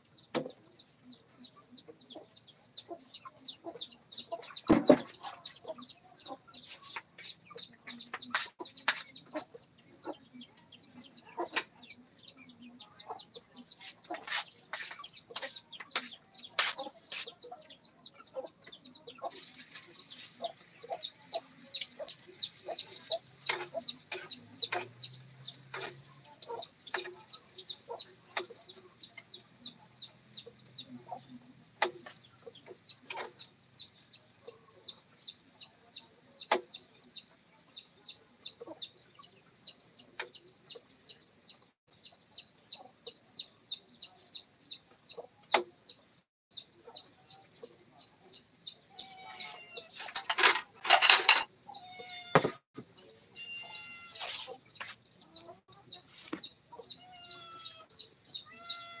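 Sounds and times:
chicks peeping: 0.0s - 59.0s
sharp knocks: 4.7s - 5.2s.

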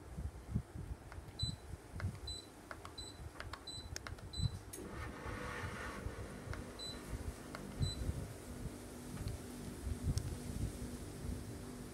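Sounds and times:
air conditioner short high beeps: 1.4s - 4.7s, 6.8s - 7.2s, 7.8s - 8.2s.

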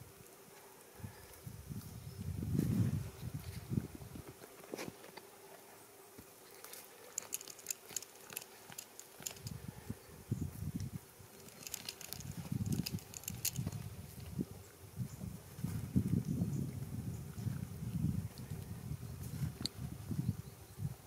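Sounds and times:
branches rustling: 2.5s - 9.9s, 10.5s - 14.4s
goats biting twigs: 6.5s - 9.6s, 11.4s - 13.9s.

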